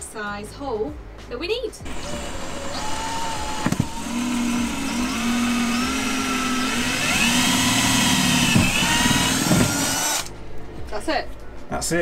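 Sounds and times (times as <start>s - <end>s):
cordless drill boring sheet metal: 1.9s - 10.3s
drill clicks: 1.9s - 10.3s.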